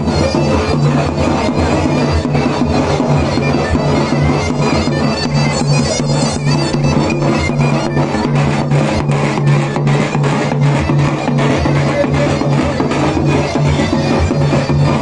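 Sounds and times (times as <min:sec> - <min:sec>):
davul drum beats: 0:00.0 - 0:15.0
zurna playing dance tune: 0:00.0 - 0:15.0.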